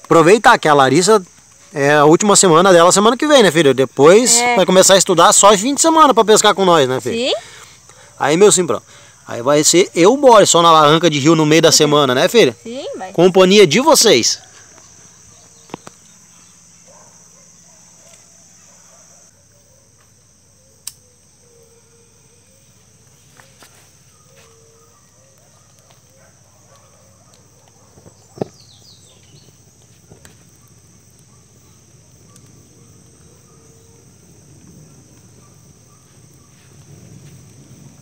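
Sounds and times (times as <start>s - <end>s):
insects trilling: 0.0s - 38.0s
sharp clicks: 20.8s - 21.0s.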